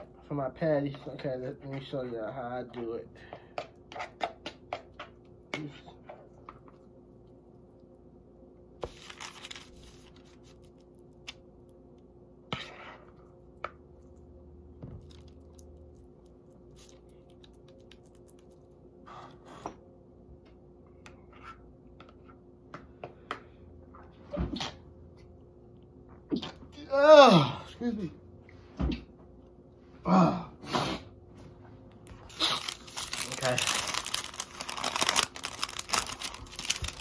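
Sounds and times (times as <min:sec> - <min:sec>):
spoon scraping bowl: 0:03.6 - 0:05.1.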